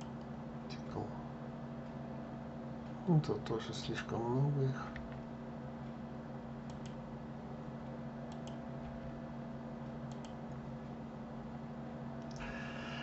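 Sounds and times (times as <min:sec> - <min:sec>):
computer mouse clicks: 0:00.0 - 0:00.3, 0:06.6 - 0:07.0, 0:08.3 - 0:09.0, 0:10.1 - 0:10.4, 0:12.2 - 0:12.6
low electrical hum: 0:00.0 - 0:13.0.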